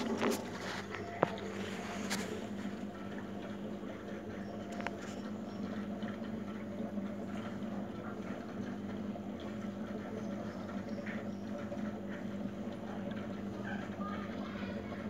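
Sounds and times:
aquarium pump humming: 0:00.0 - 0:15.0.

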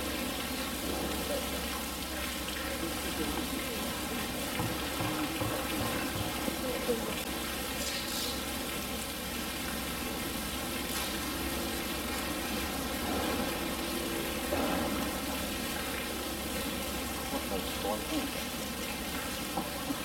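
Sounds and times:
steady hiss: 0:07.4 - 0:20.0.

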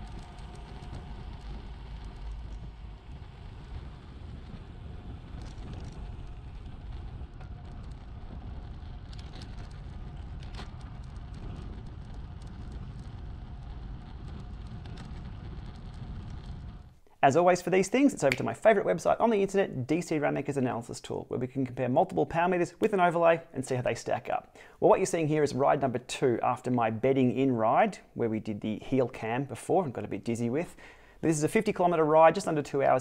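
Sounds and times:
bicycle tyre rumble on asphalt: 0:00.0 - 0:17.1
wind on microphone: 0:00.0 - 0:17.5.

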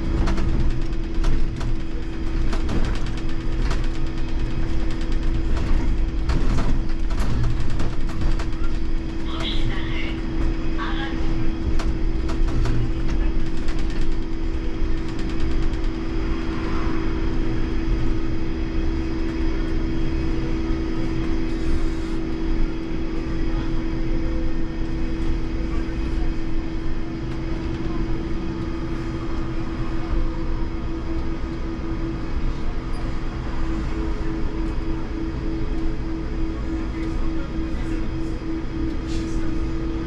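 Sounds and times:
road and tyre rumble: 0:00.0 - 0:23.6.

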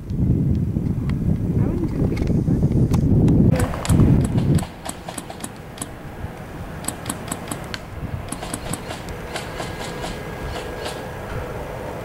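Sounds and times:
low rumble on microphone: 0:00.0 - 0:04.8
distant airsoft gunfire: 0:03.6 - 0:06.0, 0:06.8 - 0:07.7, 0:08.3 - 0:11.0.

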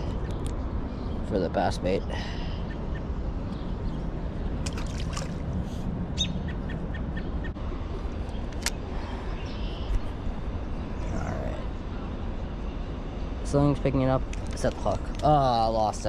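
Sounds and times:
low outdoor rumble: 0:00.0 - 0:16.0
small object splashing into pond: 0:04.6 - 0:05.4.

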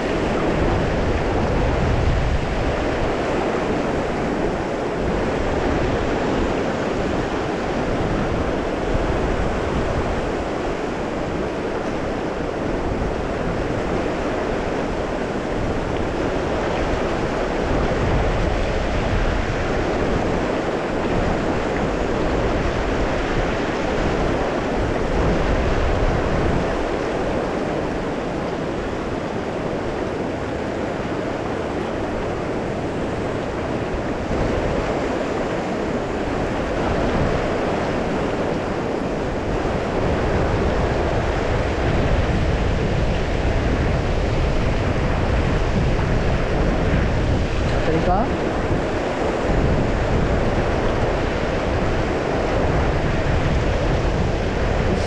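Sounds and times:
river water rushing: 0:00.0 - 0:55.0.

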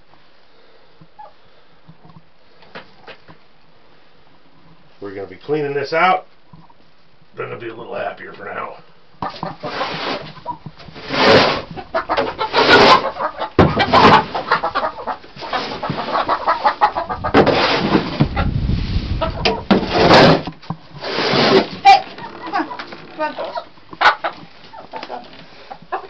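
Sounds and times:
hens clucking: 0:01.0 - 0:02.1, 0:07.7 - 0:26.0
plastic shovel scraping straw: 0:09.6 - 0:11.8, 0:12.4 - 0:13.1, 0:15.4 - 0:16.3, 0:17.3 - 0:22.0.

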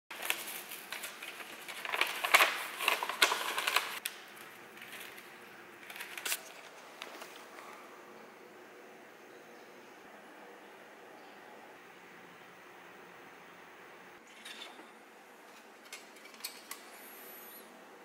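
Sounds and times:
paper crackling and rustling: 0:00.1 - 0:07.8.

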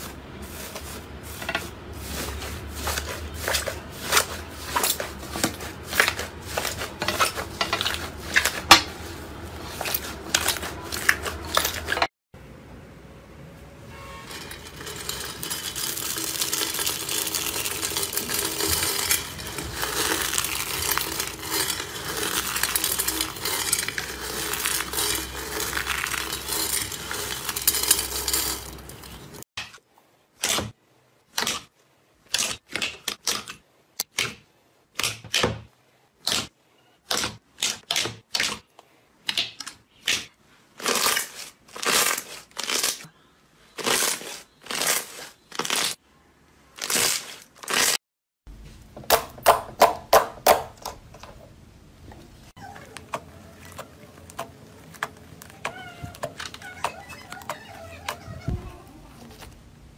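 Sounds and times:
foamy slime squishes: 0:00.0 - 0:12.1, 0:14.4 - 0:29.4, 0:52.5 - 0:59.6.

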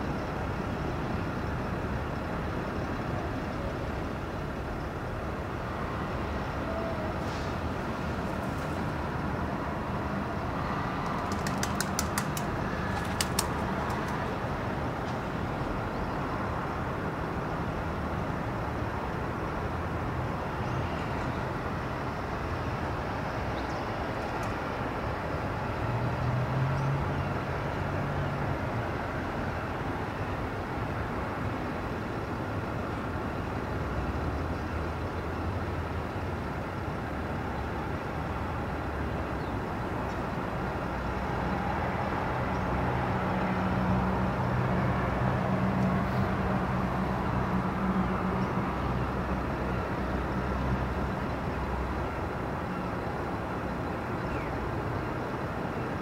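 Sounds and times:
distant vehicles humming: 0:00.0 - 0:56.0
vehicle passing: 0:07.2 - 0:14.7.

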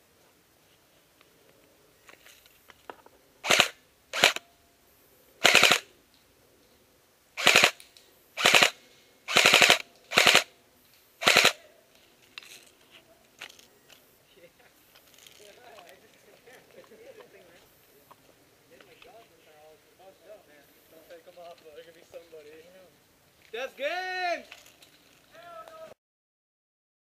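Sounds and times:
airsoft gun full-auto bursts: 0:03.4 - 0:04.4, 0:05.4 - 0:05.9, 0:07.4 - 0:07.8, 0:08.4 - 0:10.5, 0:11.2 - 0:11.6.

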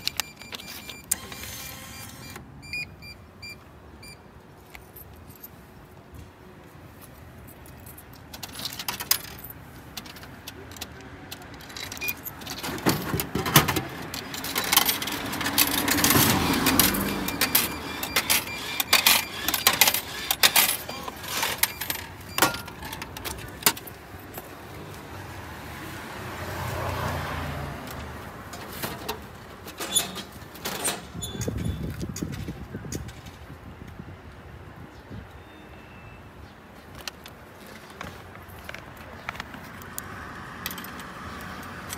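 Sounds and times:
button and mechanism clicks: 0:00.0 - 0:02.8
coins clinking: 0:13.7 - 0:24.5.

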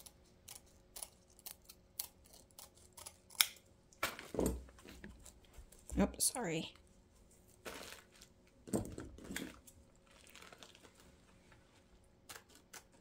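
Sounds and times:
mesh rustling and crinkling: 0:07.1 - 0:13.0.

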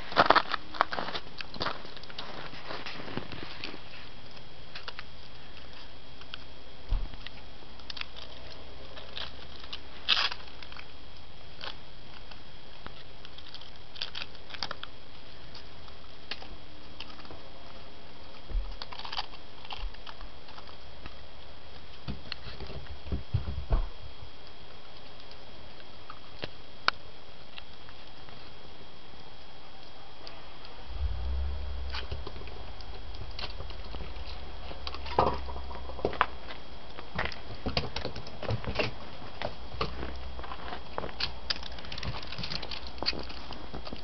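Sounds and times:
soft low thumps: 0:22.9 - 0:24.2, 0:30.6 - 0:37.6
thin high whine: 0:29.8 - 0:42.7.

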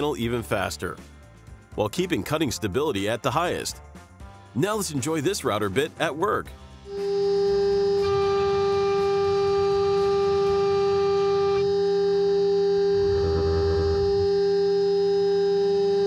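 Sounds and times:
router spindle high whine: 0:06.9 - 0:16.0
low rumble: 0:12.9 - 0:14.4.

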